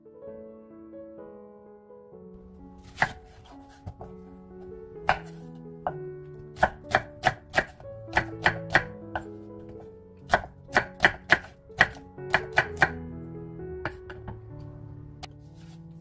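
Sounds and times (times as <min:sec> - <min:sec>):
soft background music: 0:00.0 - 0:16.0
knife chopping on wooden board: 0:02.8 - 0:04.2, 0:05.0 - 0:06.0, 0:06.6 - 0:13.0.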